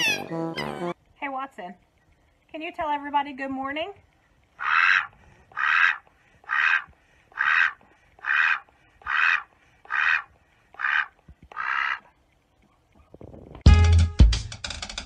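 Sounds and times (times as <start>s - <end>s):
duck quacking: 0.0s - 1.0s, 4.6s - 12.1s
drum-led music: 13.6s - 15.0s.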